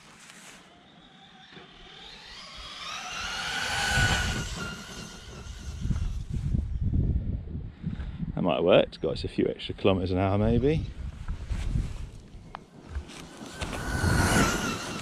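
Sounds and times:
electric motor whining: 0:00.7 - 0:06.8, 0:12.9 - 0:15.0.

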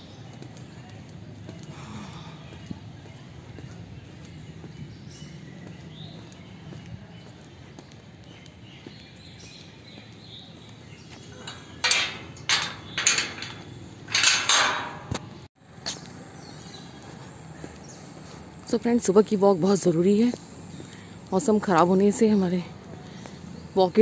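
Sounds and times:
metal gate clanking and rattling: 0:11.3 - 0:15.5.

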